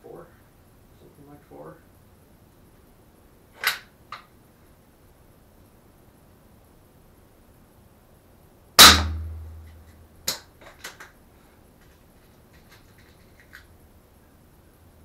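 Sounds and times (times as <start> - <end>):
sharp click: 3.6 - 4.3
air gun shot: 8.8 - 9.5.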